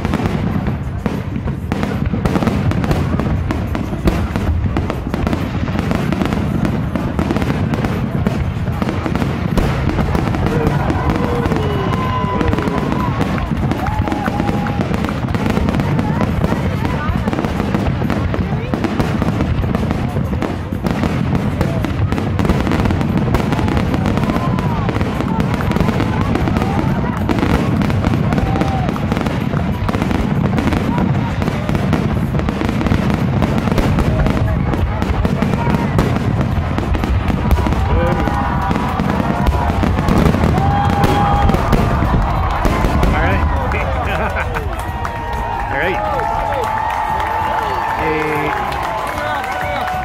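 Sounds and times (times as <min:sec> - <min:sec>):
firework cracks: 0:00.0 - 0:50.0.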